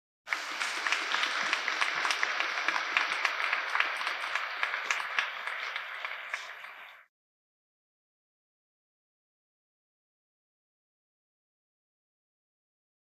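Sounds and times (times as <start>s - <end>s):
audience applauding: 0.3s - 7.1s.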